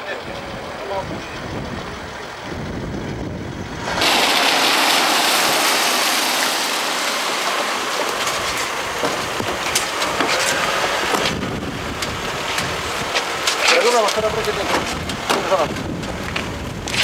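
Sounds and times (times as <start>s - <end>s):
wind on microphone: 0.2s - 4.0s, 8.2s - 13.5s, 14.2s - 17.0s
cars hissing on road: 0.4s - 17.0s.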